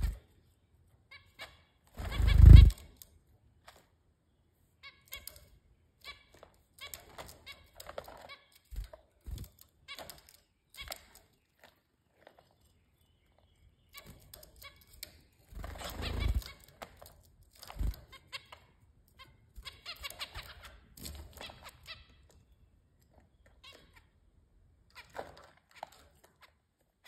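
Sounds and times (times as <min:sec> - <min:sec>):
wing flapping: 0:02.0 - 0:02.8.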